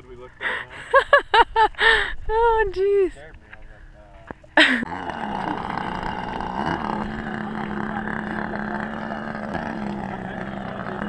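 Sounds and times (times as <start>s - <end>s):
model airplane engine running: 4.9s - 11.0s.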